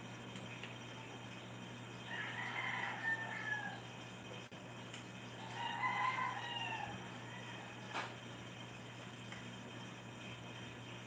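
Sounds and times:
rooster crowing: 2.0s - 3.9s, 5.4s - 8.2s.

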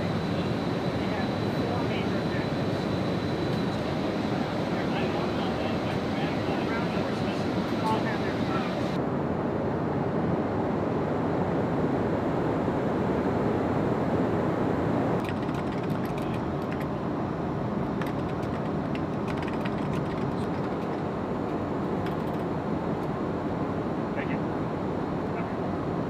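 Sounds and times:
aircraft cabin noise: 0.0s - 9.0s, 15.2s - 26.0s
keyboard typing: 15.2s - 16.9s, 18.0s - 21.0s.

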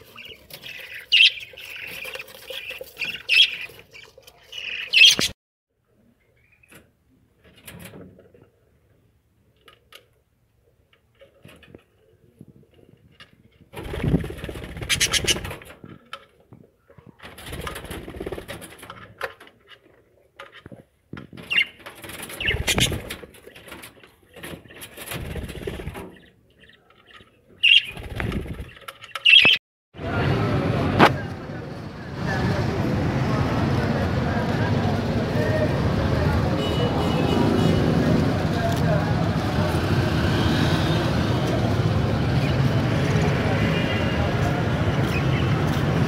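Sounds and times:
budgerigars chirping: 0.0s - 5.4s, 14.8s - 15.4s, 21.5s - 21.8s, 22.4s - 23.0s, 25.8s - 28.2s, 29.1s - 29.6s.

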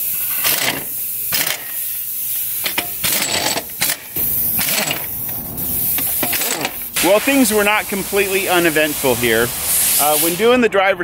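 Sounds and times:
impact wrench rattling: 0.0s - 7.7s
steady high air hiss: 0.0s - 11.0s.

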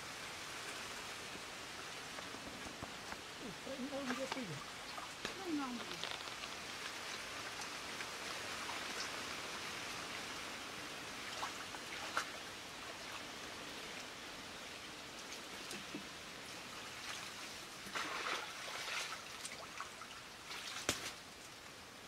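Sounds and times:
trickling water hiss: 0.0s - 22.0s
muddy water sloshing and splashing: 16.8s - 21.2s.

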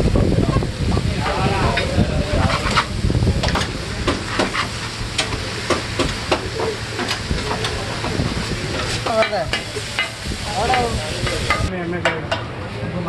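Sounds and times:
chicken sizzling: 0.0s - 11.7s
metal spatulas scraping a griddle: 1.7s - 3.0s, 3.6s - 5.4s.

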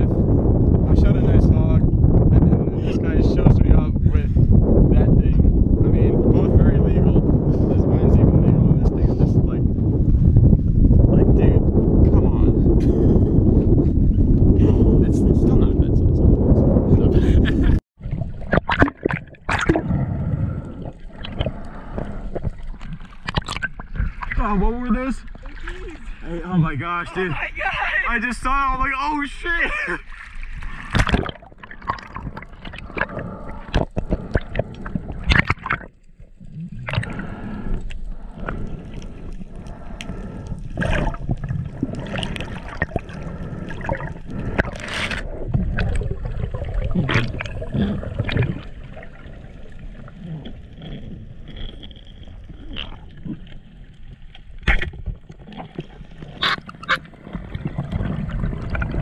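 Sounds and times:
water sloshing and gurgling: 0.0s - 59.0s.

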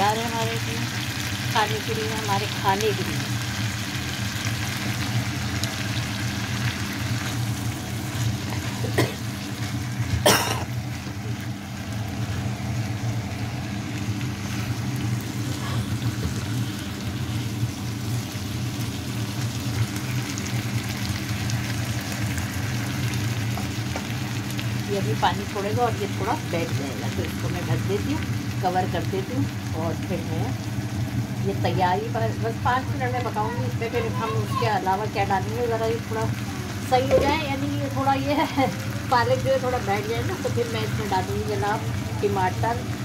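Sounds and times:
vegetables sizzling in frying pan: 0.0s - 43.0s.

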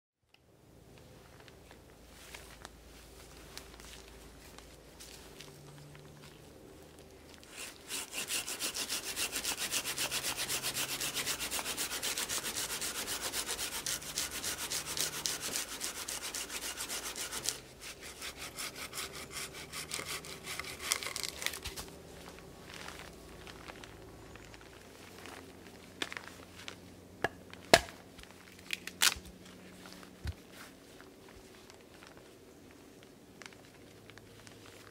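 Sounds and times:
hand saw cutting a log: 7.5s - 21.7s.

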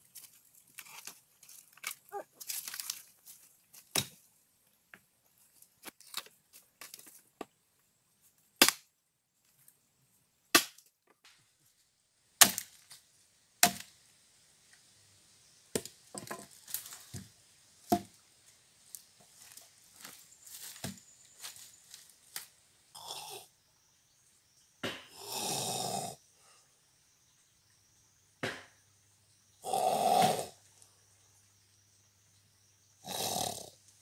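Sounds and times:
wood cracking: 0.2s - 3.2s
blade chopping log: 10.6s - 10.8s, 12.4s - 12.7s, 28.4s - 28.7s.

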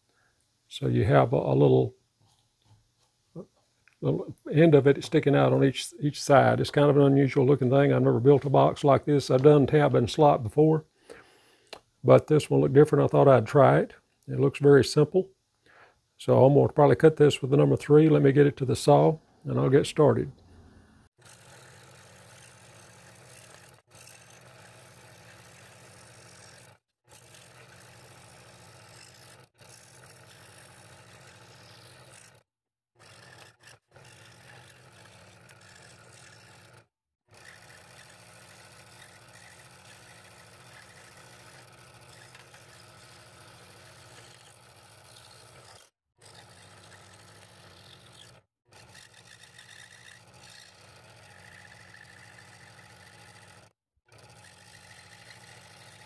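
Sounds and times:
scroll saw running: 21.1s - 56.0s.

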